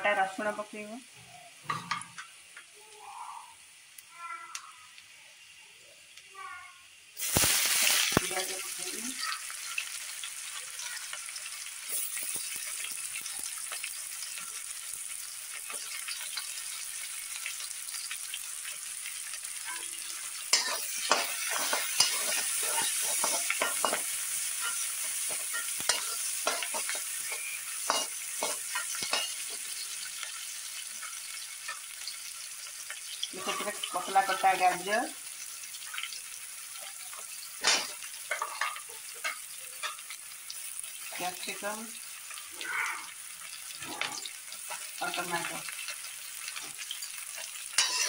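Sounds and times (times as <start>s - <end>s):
onions sizzling in hot oil: 0.0s - 48.0s
spoon scraping a pan: 19.6s - 32.2s, 32.9s - 34.8s, 35.8s - 40.2s, 42.3s - 48.0s.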